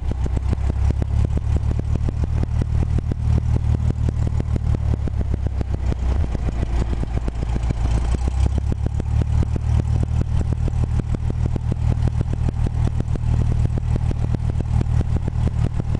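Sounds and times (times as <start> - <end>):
aircraft engine and propeller droning: 7.5 - 8.6.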